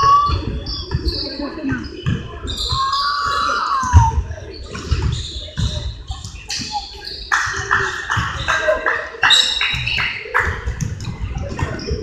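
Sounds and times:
players and spectators voices: 0.0 - 12.0
shoe squeak: 2.4 - 4.2, 4.9 - 7.3.

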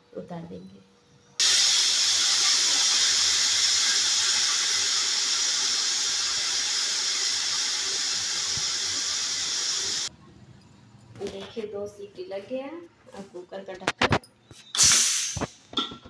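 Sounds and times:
pressure cooker whistling steam: 1.4 - 10.1, 14.7 - 15.5.

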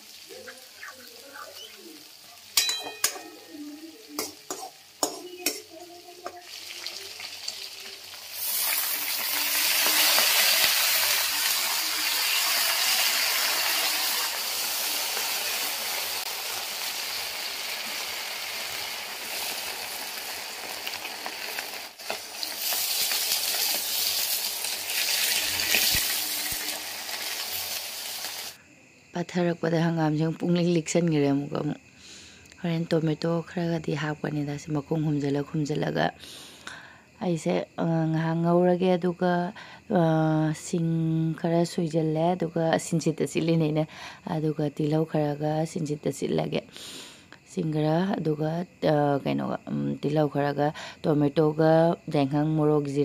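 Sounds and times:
greens sizzling in a wok: 0.0 - 36.6, 37.3 - 53.0
metal spatula stirring: 2.5 - 6.4
metal ladle scraping a wok: 22.4 - 27.7.

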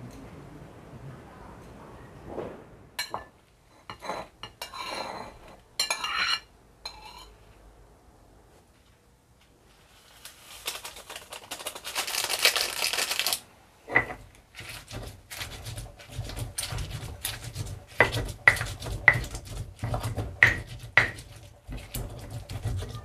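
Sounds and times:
kitchen utensils knocking and clinking: 13.9 - 23.0.

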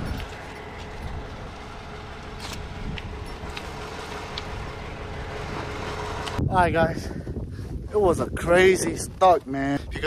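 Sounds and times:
truck engine rumbling: 0.0 - 7.9.

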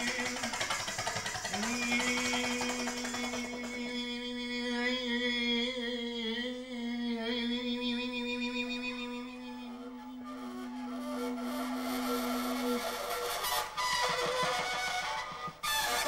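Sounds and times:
man humming a long note: 1.5 - 13.4.

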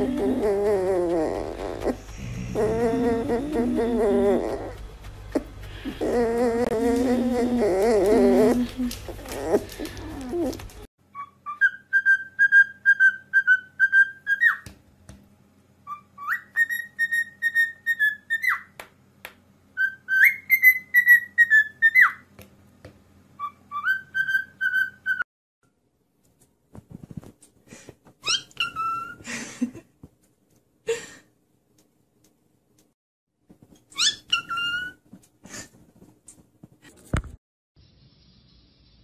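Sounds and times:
puppy whining: 0.0 - 14.6, 28.2 - 29.3, 33.8 - 35.1
cockatiel whistling a tune: 11.1 - 14.6, 15.8 - 18.7, 19.8 - 22.2, 23.4 - 25.2, 28.2 - 29.2, 34.0 - 35.0.

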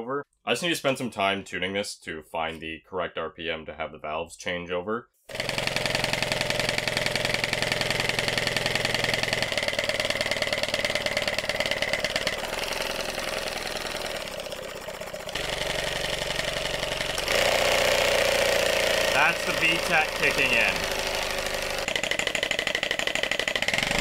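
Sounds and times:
small engine running fast: 5.3 - 24.0.

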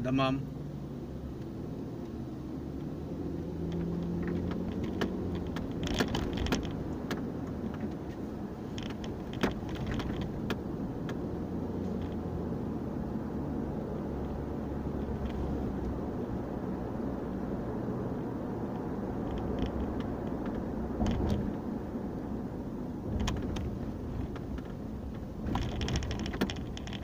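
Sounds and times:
road and engine rumble inside car: 0.0 - 27.0
light clicks and rattles: 3.7 - 11.2, 19.2 - 21.6, 23.1 - 27.0.

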